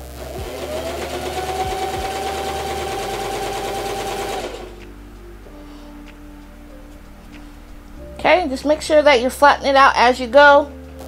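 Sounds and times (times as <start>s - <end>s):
sewing machine stitching: 0.0s - 4.8s.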